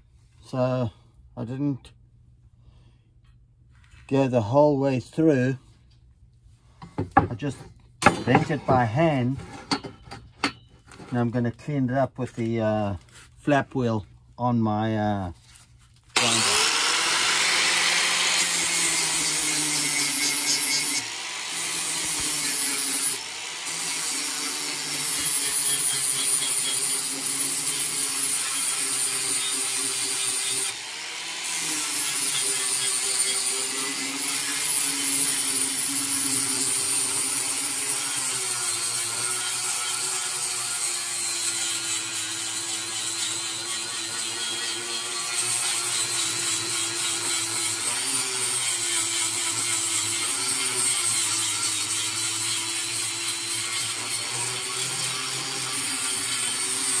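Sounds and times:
angle grinder grinding steel: 16.2s - 57.0s.

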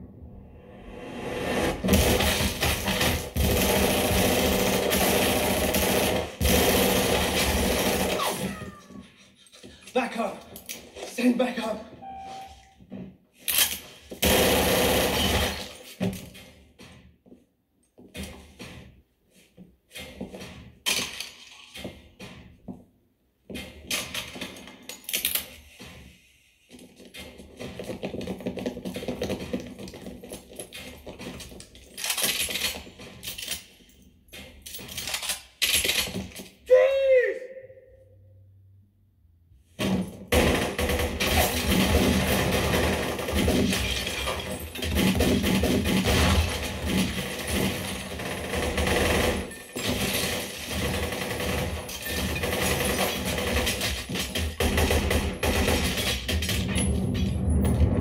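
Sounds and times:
gunshots: 1.5s - 8.8s, 14.2s - 15.9s, 39.8s - 56.7s
rapid gunfire: 1.6s - 8.6s, 14.2s - 15.8s, 40.3s - 56.4s.

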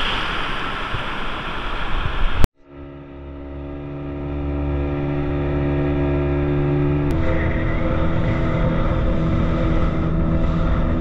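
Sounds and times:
wind: 0.0s - 11.0s
outboard motor running: 2.6s - 11.0s.

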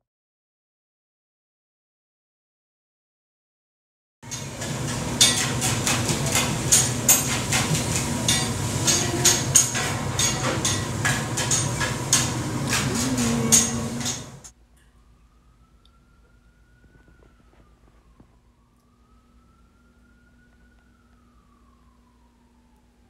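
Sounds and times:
utensils and dishes clattering: 4.2s - 14.5s
kitchen equipment hum: 4.2s - 23.0s.

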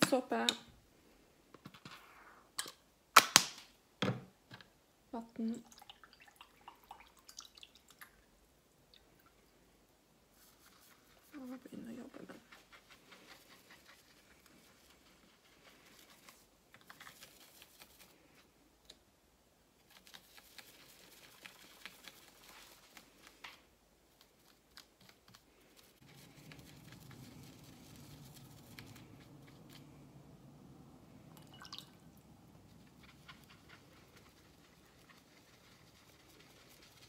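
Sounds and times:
faint low hum: 4.2s - 37.0s
brush scrubbing on silicone mat: 10.2s - 18.5s, 19.8s - 23.5s, 24.1s - 31.3s, 32.0s - 37.0s.

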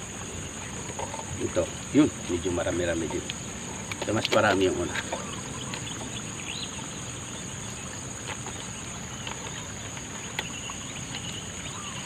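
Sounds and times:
insect trill: 0.0s - 12.0s.

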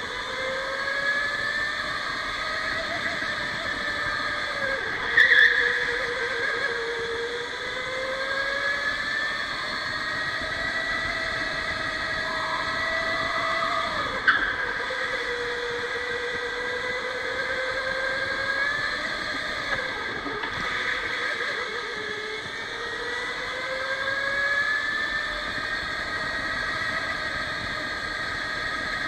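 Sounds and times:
electric motor whining: 0.0s - 29.0s
steady rushing noise: 0.0s - 29.0s.

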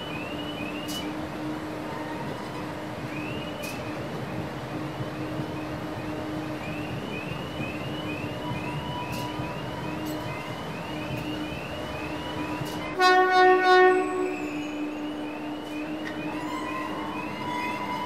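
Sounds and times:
locomotive engine rumble: 0.0s - 18.0s
locomotive warning siren whoops: 6.9s - 18.0s
loud horn blast: 13.0s - 15.2s.

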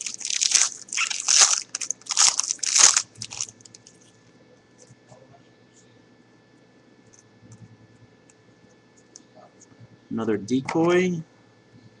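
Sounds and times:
foil wrapper crinkling: 0.0s - 4.1s.

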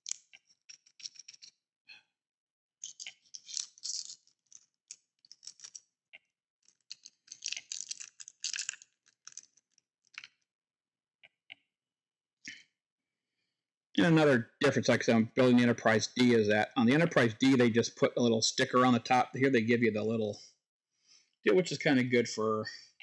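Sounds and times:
tiny screws clicking: 2.8s - 5.8s, 6.7s - 10.3s
plastic bag crinkling: 6.9s - 9.5s.

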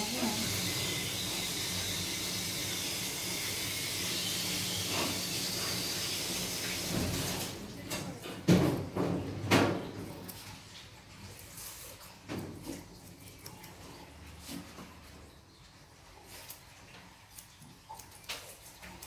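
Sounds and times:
grooming scissors snipping fur: 17.3s - 19.0s.

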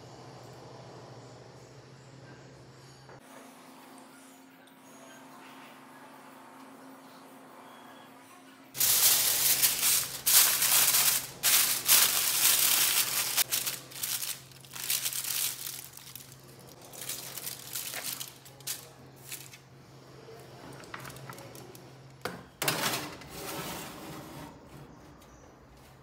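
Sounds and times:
aluminium foil crinkling: 8.8s - 19.6s, 20.7s - 21.8s
foil package rustling: 8.8s - 19.6s, 20.8s - 21.8s.

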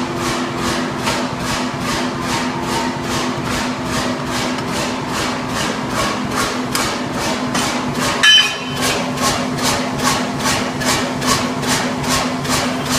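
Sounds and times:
steady hum: 8.0s - 9.6s
metallic clang of power hammer: 8.2s - 9.0s.

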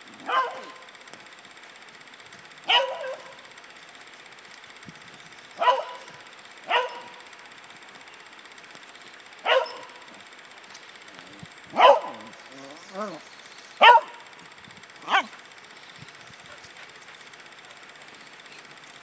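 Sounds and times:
dog barking: 0.2s - 0.8s, 2.7s - 3.4s, 5.6s - 6.1s, 6.7s - 7.2s, 9.4s - 10.0s, 11.8s - 12.3s, 13.8s - 14.2s, 15.0s - 15.4s.

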